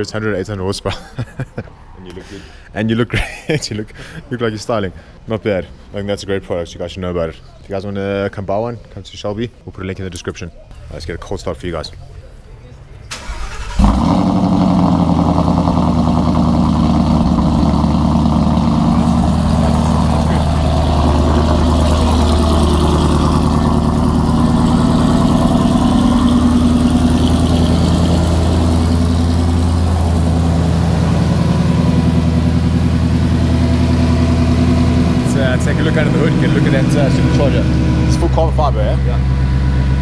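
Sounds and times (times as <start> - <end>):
car engine idling: 13.2 - 40.0.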